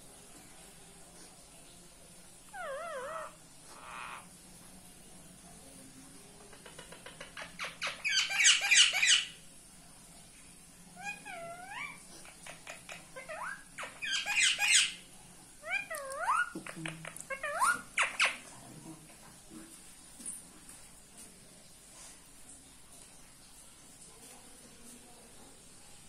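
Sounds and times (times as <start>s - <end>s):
parakeets squawking harshly: 2.6s - 4.2s, 7.5s - 9.3s
parakeets chattering calls: 6.6s - 9.3s, 11.0s - 15.0s.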